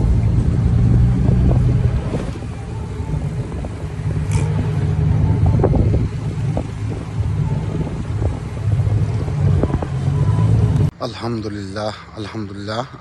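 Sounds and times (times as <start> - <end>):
wind noise on microphone: 0.0 - 10.9
motorcycles cruising: 0.0 - 11.0.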